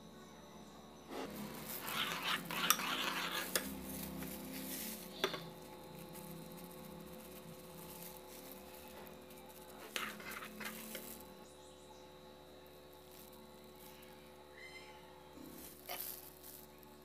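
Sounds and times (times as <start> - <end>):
spoon stirring in a bowl: 1.1 - 11.4.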